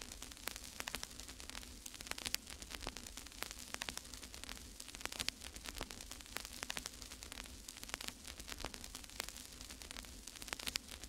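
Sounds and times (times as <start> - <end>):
crackling clicks: 0.0 - 11.0
faint steady hiss: 0.0 - 11.0.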